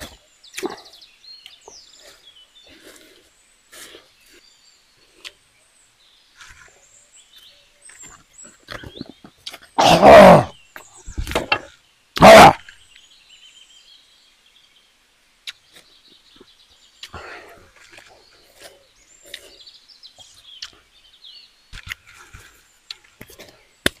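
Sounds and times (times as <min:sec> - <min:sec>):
faint bird chirps: 0:00.0 - 0:09.8, 0:10.4 - 0:24.0
man's loud vocal outburst: 0:09.8 - 0:10.6, 0:12.2 - 0:12.7.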